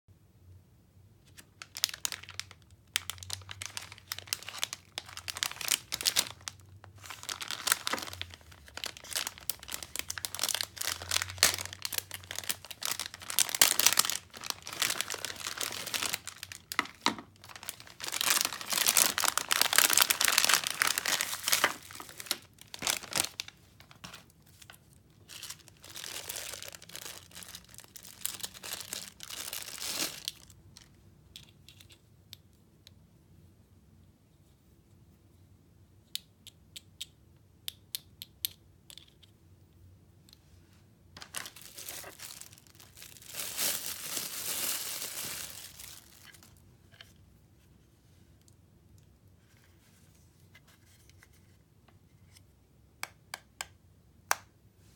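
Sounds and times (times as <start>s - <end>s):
plastic bags crinkling: 1.3s - 30.9s, 41.2s - 46.6s.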